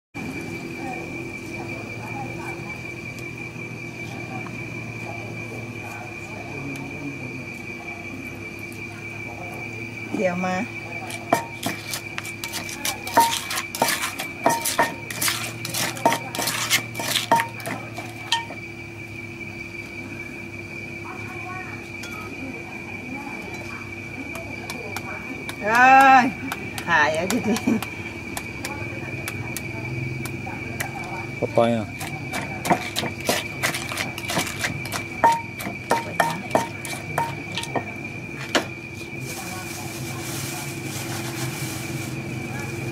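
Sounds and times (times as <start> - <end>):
spoon knocking in mortar: 11.1 - 18.6, 32.0 - 38.7
wooden pestle pounding in mortar: 11.1 - 18.6, 24.3 - 31.1, 32.0 - 38.8.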